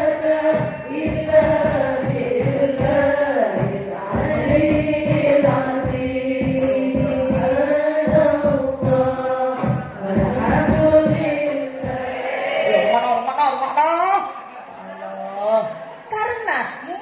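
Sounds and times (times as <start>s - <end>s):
rapid steady beat: 0.0s - 13.2s
voices singing slow melody: 0.0s - 13.7s.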